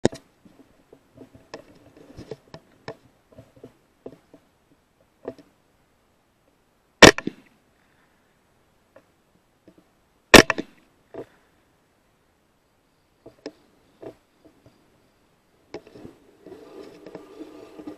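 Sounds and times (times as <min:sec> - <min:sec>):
rifle shots: 0:07.0 - 0:07.5, 0:10.3 - 0:10.7.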